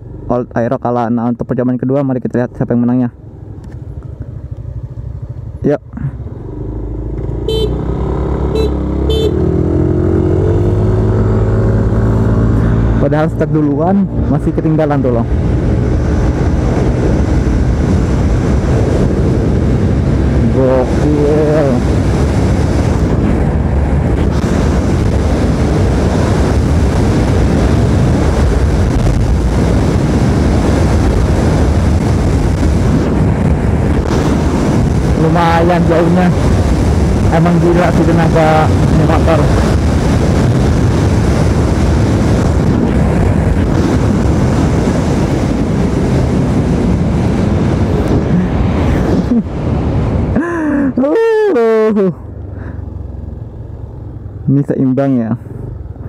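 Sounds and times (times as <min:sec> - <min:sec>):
short horn beeps: 0:07.4 - 0:07.8, 0:08.5 - 0:09.4
wind buffeting microphone: 0:15.2 - 0:51.0.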